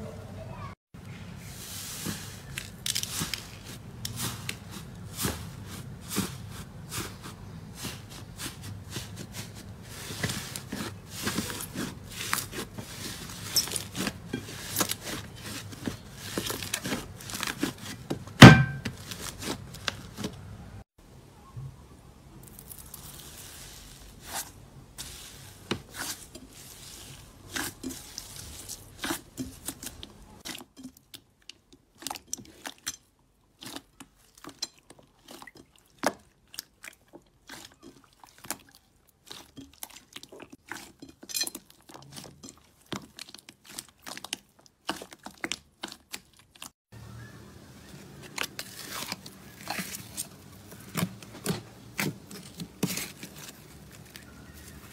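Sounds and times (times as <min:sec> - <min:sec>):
hands squishing slime: 0:01.9 - 0:20.3, 0:33.6 - 0:46.7.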